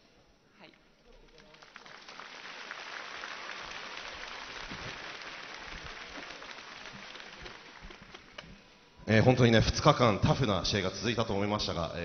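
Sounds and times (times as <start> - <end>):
crowd applauding: 1.1 - 8.7.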